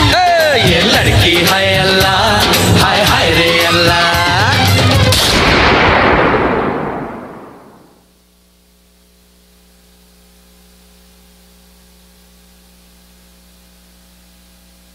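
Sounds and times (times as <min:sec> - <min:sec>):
loud dance music: 0:00.1 - 0:05.2
low electrical hum: 0:05.2 - 0:14.9.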